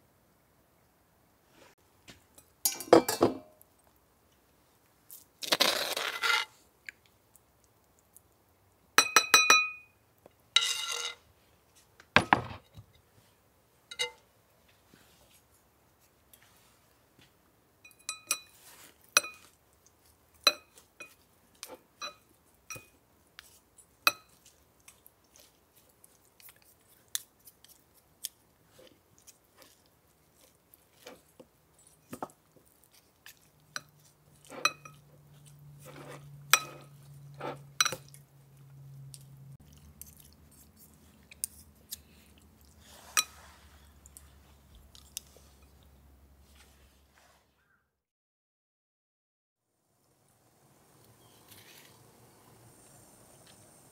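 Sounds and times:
soft squelchy mixing: 14.3 - 47.6.

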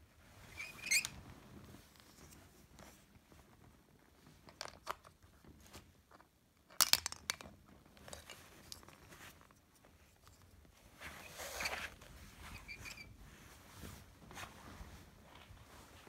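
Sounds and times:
plastic toy parts clicking: 6.7 - 7.5.

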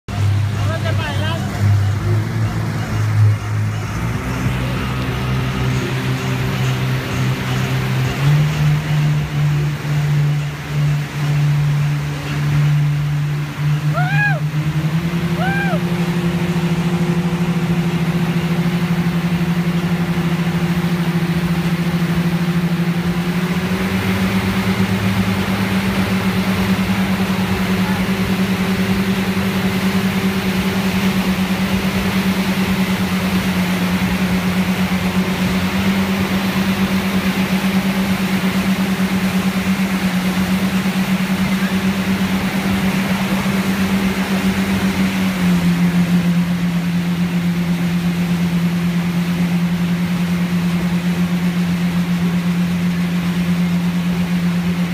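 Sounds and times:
motorboat engine running: 0.0 - 54.9
rush of boat wake: 0.0 - 54.9.

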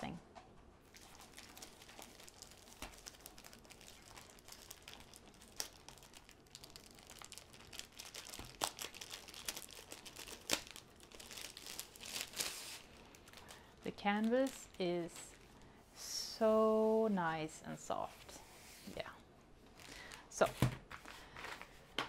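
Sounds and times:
plastic sleeve crinkling: 0.8 - 15.6.

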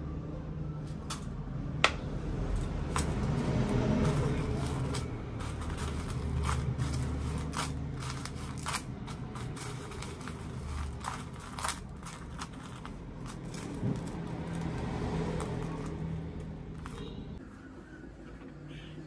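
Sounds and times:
dry noodles crunching: 2.6 - 17.1.

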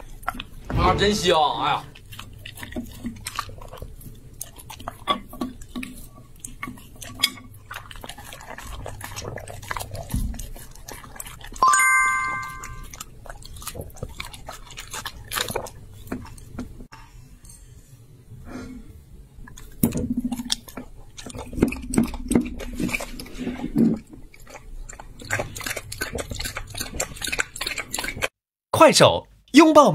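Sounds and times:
dog chewing and licking: 0.0 - 0.6, 1.9 - 16.8, 19.4 - 28.3
bright chime sound effect: 11.6 - 12.9.

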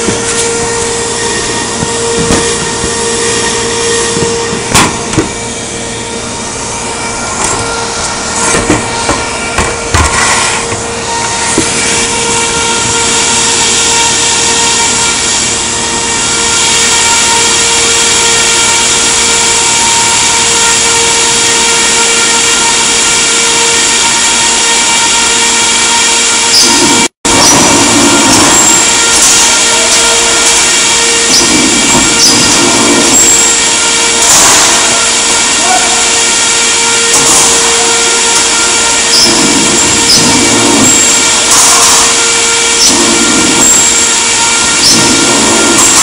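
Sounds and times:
loud even whirring: 0.0 - 46.0.

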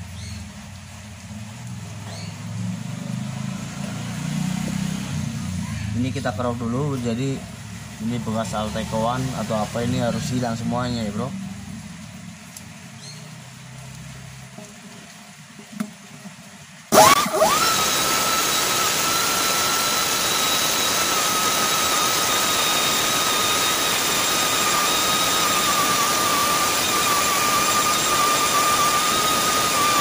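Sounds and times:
buffing tool whine: 16.9 - 30.0
hissing rasp of buffing: 16.9 - 30.0.

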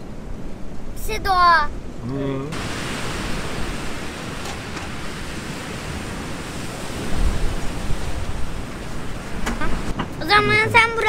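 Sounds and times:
strong wind rushing: 2.6 - 11.0
wind buffeting microphone: 2.6 - 11.0.

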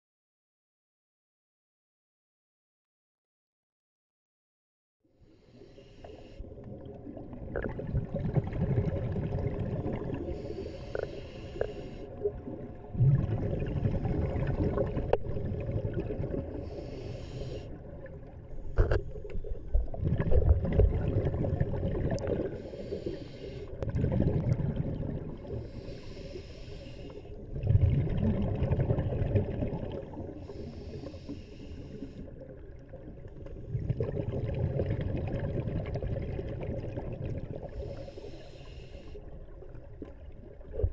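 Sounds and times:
regulator hiss on inhale: 5.3 - 6.6, 10.2 - 12.2, 16.5 - 17.9, 22.6 - 23.8, 25.5 - 27.4, 30.3 - 32.4, 37.7 - 39.4
exhaled bubbles rumbling: 6.4 - 11.0, 12.0 - 17.0, 17.7 - 23.1, 23.7 - 25.9, 27.4 - 31.0, 32.0 - 38.3, 39.2 - 40.9.

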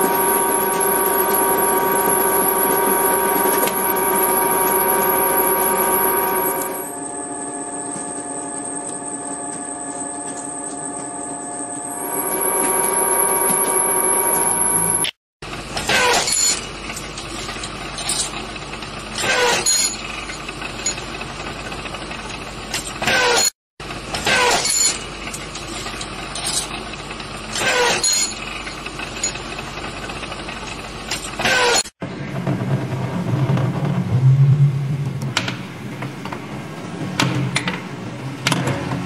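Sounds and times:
milling cutter whine: 0.0 - 15.2
machine running: 0.0 - 15.6.

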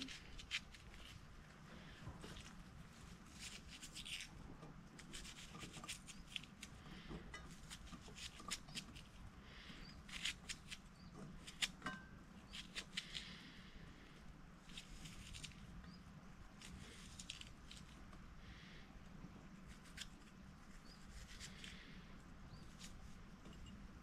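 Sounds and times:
knife cutting onion: 5.0 - 9.2, 10.0 - 13.4.

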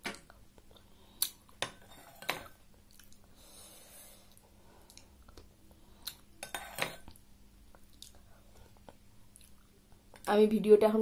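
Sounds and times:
quiet chewing: 2.7 - 3.4, 4.2 - 6.3, 7.1 - 10.3.

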